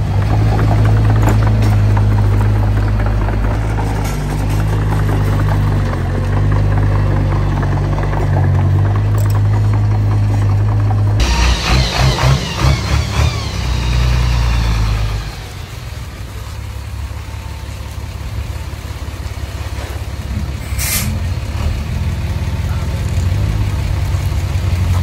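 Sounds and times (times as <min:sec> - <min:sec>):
machinery clattering: 0:00.0 - 0:16.9
heavy diesel machinery running: 0:00.0 - 0:25.0
hissing air burst: 0:20.6 - 0:21.2.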